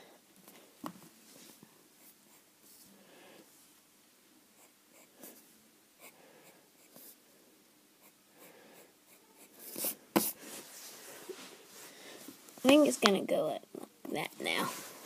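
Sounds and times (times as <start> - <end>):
pencil scratching on paper: 8.8 - 10.4.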